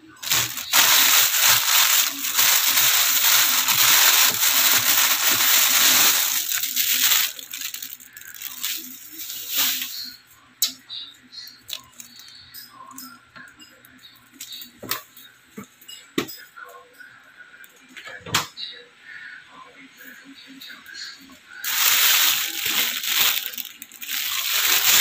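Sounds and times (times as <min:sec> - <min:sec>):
plastic bags rustling: 0:00.0 - 0:10.1, 0:21.6 - 0:25.0.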